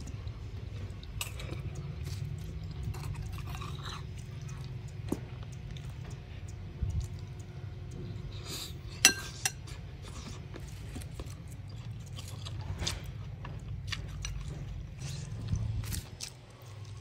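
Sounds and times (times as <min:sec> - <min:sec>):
low steady hum: 0:00.0 - 0:17.0
metal spoon clinking in ceramic bowl: 0:09.0 - 0:09.6.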